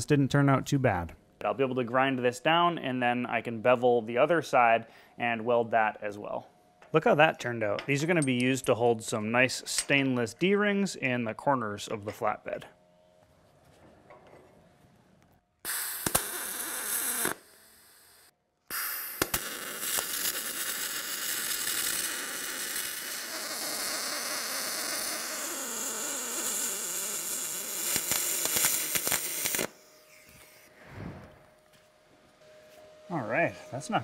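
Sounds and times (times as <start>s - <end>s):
welding arc crackling hiss: 15.7s - 31.4s.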